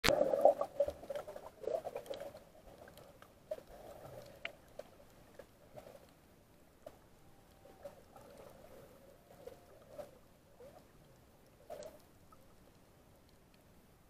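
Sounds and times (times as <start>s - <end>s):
underwater splashing and bubbling: 0.0s - 6.2s, 6.8s - 12.8s.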